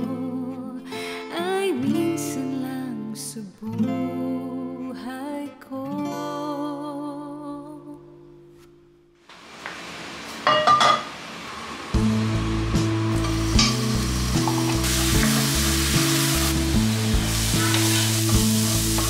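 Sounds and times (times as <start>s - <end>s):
acoustic guitar song with singing: 0.0s - 8.5s
food frying in a pan: 9.3s - 19.0s.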